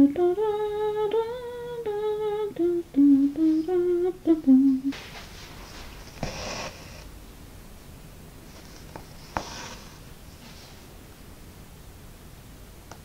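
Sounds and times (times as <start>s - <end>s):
person humming slow tune: 0.0s - 5.0s.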